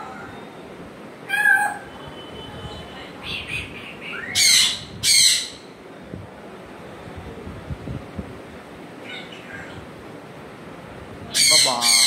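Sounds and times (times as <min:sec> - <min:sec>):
parrot calling: 0:01.2 - 0:02.0, 0:03.2 - 0:05.7, 0:09.0 - 0:09.8, 0:11.3 - 0:12.0.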